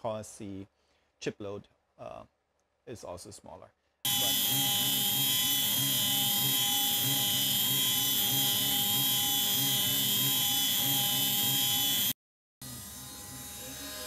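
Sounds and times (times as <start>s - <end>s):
router spindle whining: 4.1s - 14.0s.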